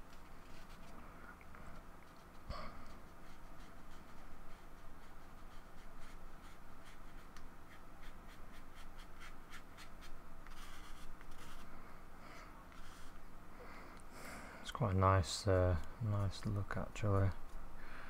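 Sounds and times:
paintbrush stroking paper: 0.0 - 0.9, 1.7 - 11.8, 12.7 - 13.2
low steady hum: 0.0 - 18.0.

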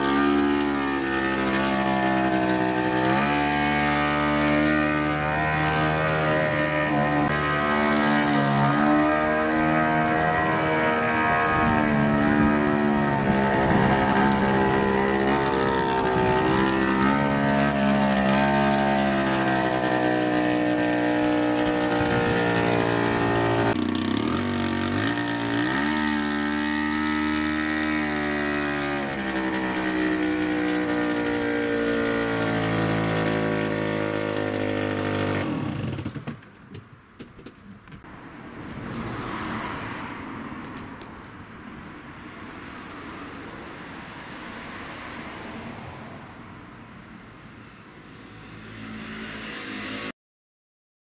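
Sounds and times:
small car engine running: 0.0 - 36.5.

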